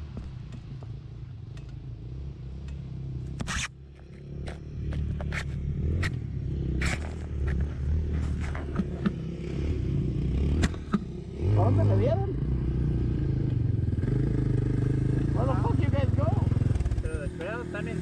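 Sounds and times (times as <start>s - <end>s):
scrapes and clicks: 3.3s - 9.2s.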